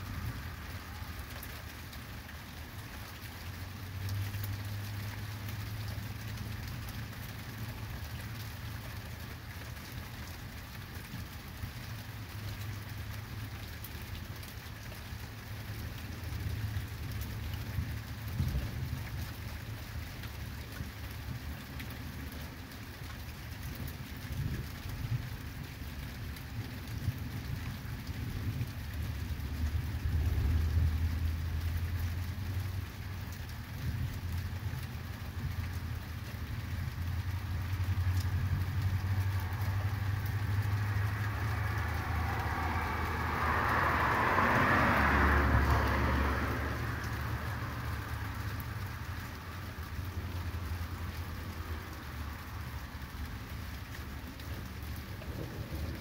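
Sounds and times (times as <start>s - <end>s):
steady rain: 0.0s - 56.0s
distant thunder rumbling: 55.0s - 56.0s.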